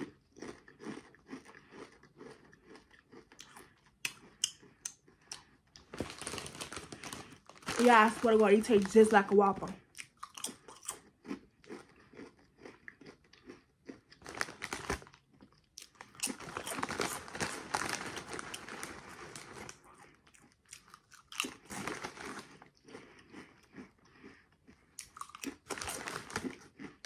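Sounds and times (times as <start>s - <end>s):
crunching and chewing chips: 0.0s - 27.0s
foil bag crinkling: 5.8s - 9.8s, 14.2s - 15.2s, 16.0s - 19.8s, 21.7s - 22.6s, 25.6s - 26.6s.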